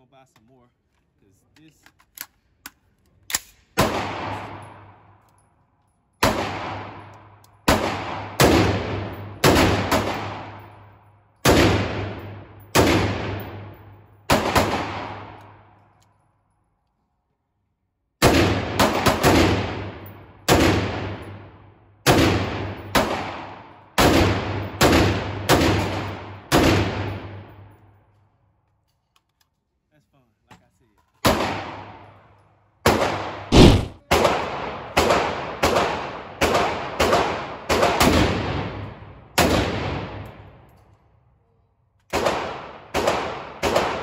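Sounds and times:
rifle shots with echo: 3.3 - 5.0, 6.2 - 15.7, 18.2 - 27.6, 31.2 - 32.1, 32.9 - 40.4, 42.1 - 44.0.

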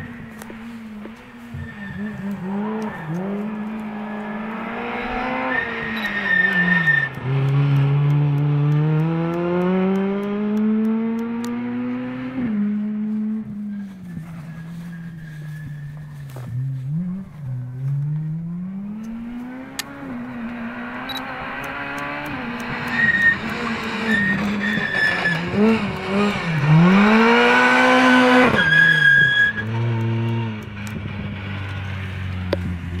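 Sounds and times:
tyre squeals: 0.0 - 7.2, 13.4 - 17.8, 22.8 - 27.1, 27.8 - 29.8
rally car engine revving: 0.0 - 33.0.

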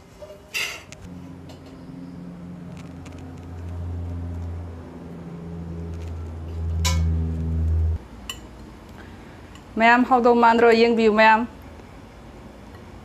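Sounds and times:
low hum: 1.1 - 8.1.

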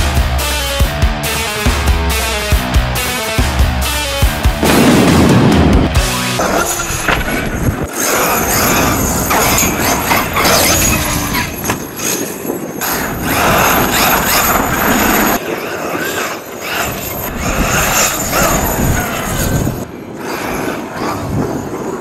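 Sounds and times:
rc truck drivetrain revving: 6.3 - 12.1, 12.8 - 21.8.

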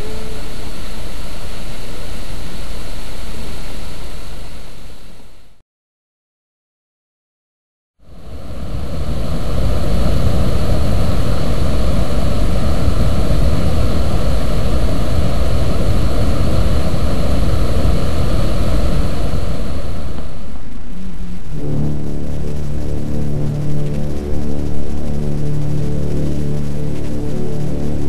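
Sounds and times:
rushing water with low rumble: 8.2 - 20.6.

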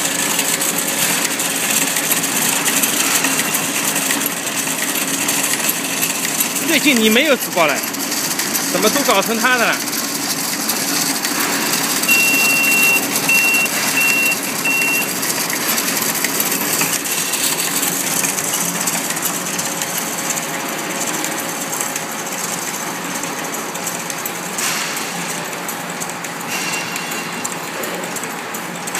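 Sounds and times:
packing machine clatter: 0.0 - 28.9
short high electronic beeps: 12.1 - 15.1.

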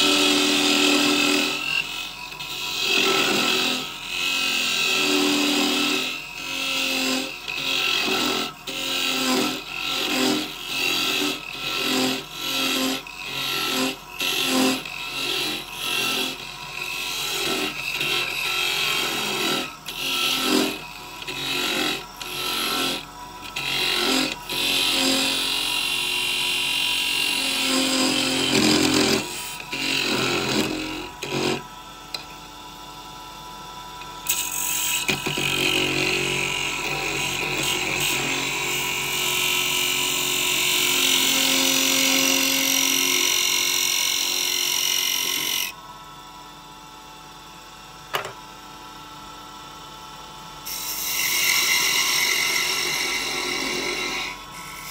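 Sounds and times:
turning tool scraping wood: 0.0 - 25.6, 27.2 - 32.2
wood lathe running: 0.0 - 32.4, 33.9 - 45.8, 50.7 - 54.9.

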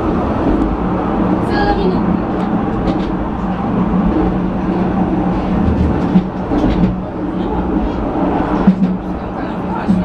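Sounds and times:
funicular car humming: 0.0 - 10.0.

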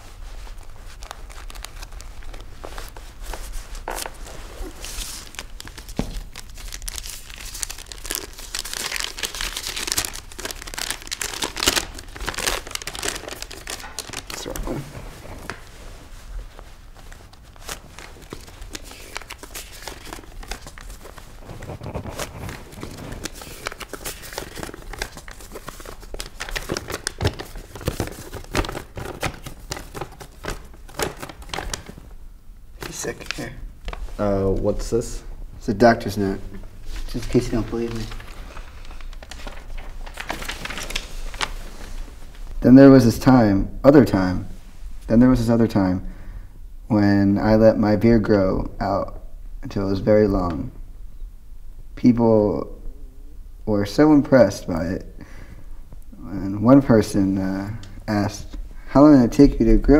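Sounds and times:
paper rustling and crinkling: 0.1 - 32.1, 32.8 - 34.7, 36.6 - 42.6.

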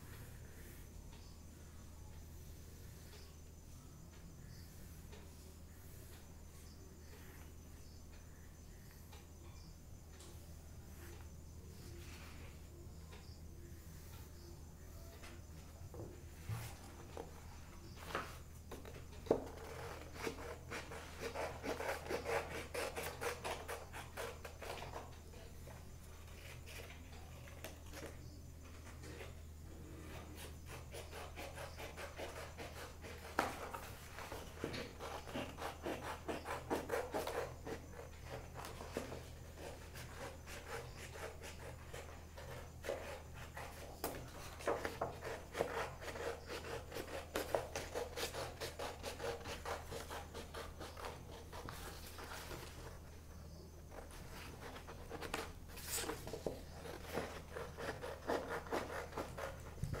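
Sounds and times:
paper rustling: 49.2 - 53.2, 53.9 - 60.0.

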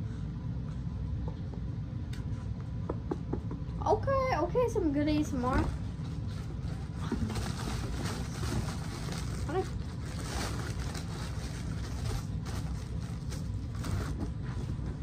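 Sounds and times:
wrapping paper rustling: 5.4 - 14.5.

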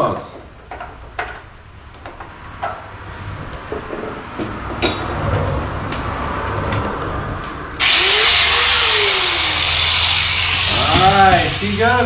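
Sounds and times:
power tool whining: 7.8 - 12.0.

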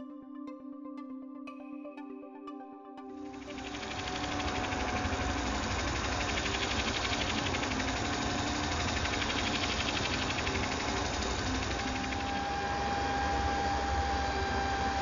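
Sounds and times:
spindle sander whirring: 3.3 - 15.0
wood block sanding buzz: 3.4 - 15.0.

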